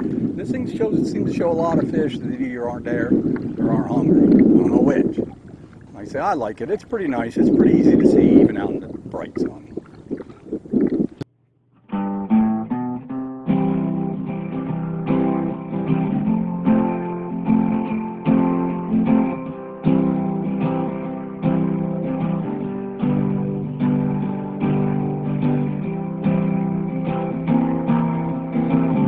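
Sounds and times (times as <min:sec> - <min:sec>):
strummed acoustic guitar: 0:11.8 - 0:29.0.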